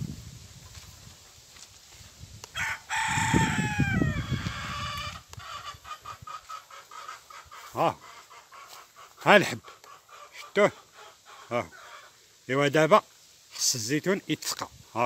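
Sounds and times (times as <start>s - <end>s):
rooster crowing: 2.6s - 5.7s
chicken clucking: 4.2s - 12.2s.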